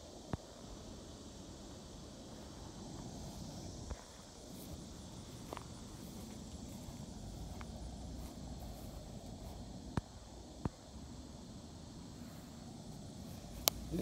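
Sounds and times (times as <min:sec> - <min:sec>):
insects buzzing: 0:00.0 - 0:14.0
footsteps on grass: 0:02.4 - 0:09.9.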